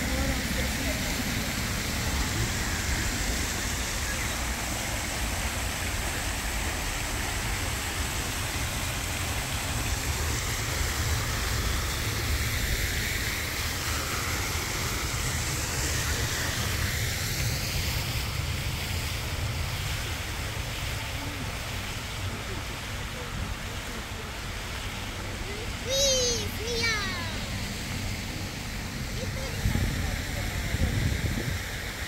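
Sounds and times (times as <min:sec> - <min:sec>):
fountain water splashing: 0:00.0 - 0:32.0
wind rumbling on microphone: 0:27.4 - 0:32.0.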